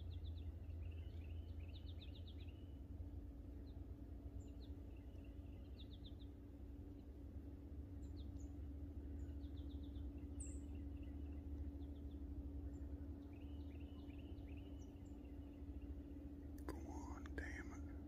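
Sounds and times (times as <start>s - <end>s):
low rumble and hum: 0.0s - 18.0s
small birds chirping: 0.0s - 18.0s.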